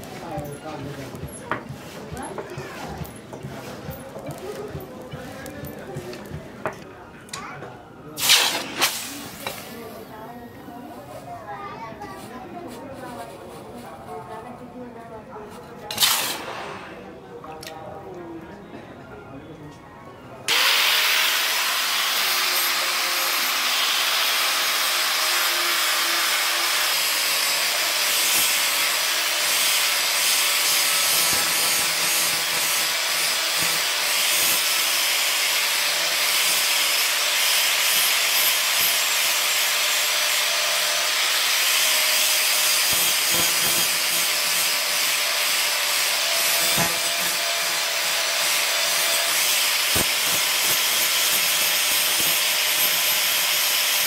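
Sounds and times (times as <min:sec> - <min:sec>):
angle grinder grinding steel: 0:20.5 - 0:54.0.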